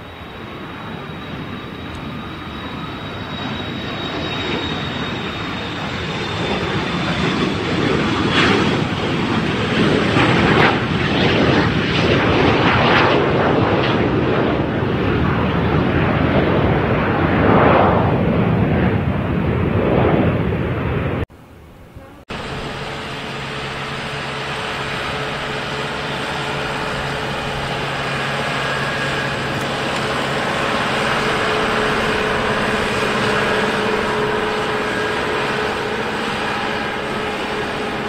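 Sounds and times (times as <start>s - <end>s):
jet engines at takeoff: 0.0s - 38.0s
thin high whine: 21.4s - 38.0s.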